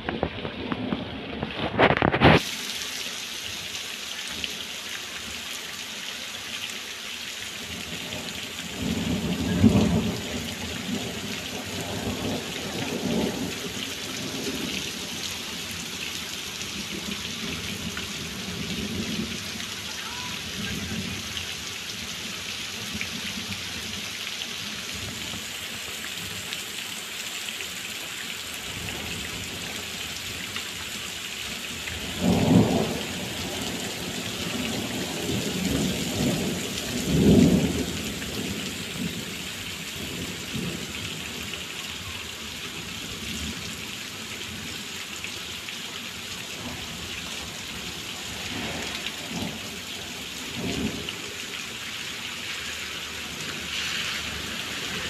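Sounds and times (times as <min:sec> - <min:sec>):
heavy rain on paving: 0:00.0 - 0:55.0
thunder rumbling: 0:08.0 - 0:15.2, 0:31.9 - 0:39.3.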